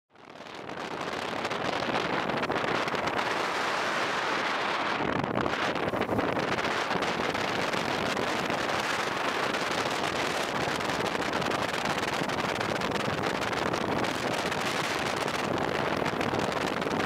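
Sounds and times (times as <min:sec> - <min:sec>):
wind buffeting microphone: 0:00.2 - 0:17.0.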